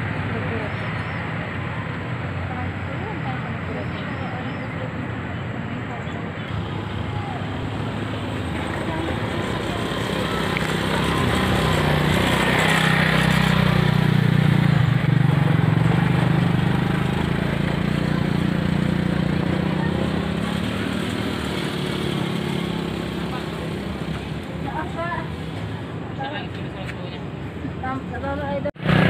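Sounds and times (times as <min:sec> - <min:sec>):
small engine passing: 0:06.4 - 0:26.5, 0:28.0 - 0:29.0.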